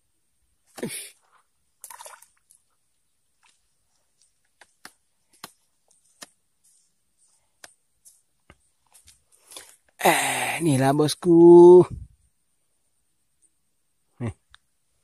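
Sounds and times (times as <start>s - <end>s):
water dripping: 1.8s - 6.9s.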